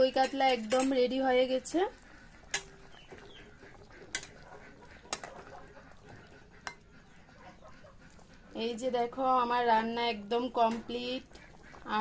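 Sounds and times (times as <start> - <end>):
metal spatula clinking on pan: 0.1 - 1.1, 4.1 - 4.4.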